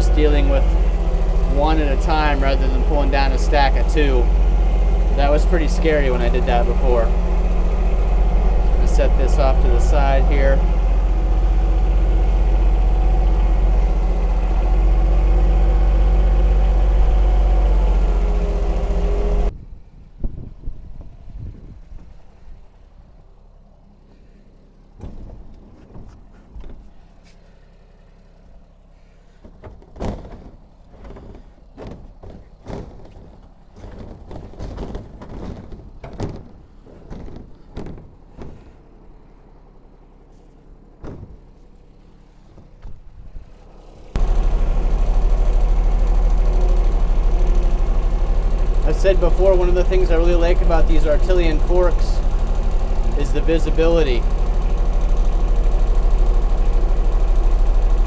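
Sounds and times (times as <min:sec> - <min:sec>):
tractor diesel engine running: 0:00.0 - 0:58.0
knocks and thumps: 0:29.4 - 0:38.8, 0:41.0 - 0:41.6.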